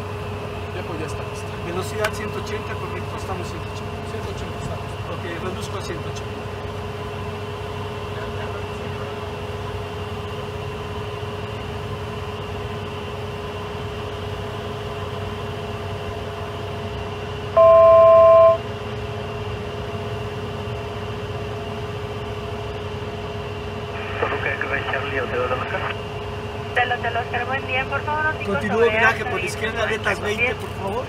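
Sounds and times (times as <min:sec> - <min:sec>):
jet cockpit hum: 0:16.0 - 0:18.8, 0:23.8 - 0:31.0
two-pitch electronic alert tone: 0:17.6 - 0:18.6.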